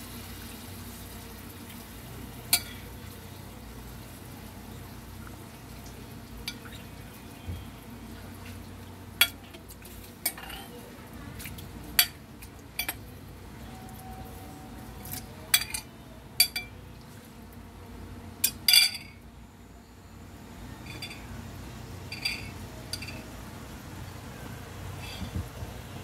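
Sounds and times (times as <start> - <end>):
kitchen utensils and dishes clinking: 2.5 - 2.9, 9.2 - 10.8, 12.8 - 13.1, 15.0 - 16.8, 20.8 - 21.3, 22.1 - 23.3.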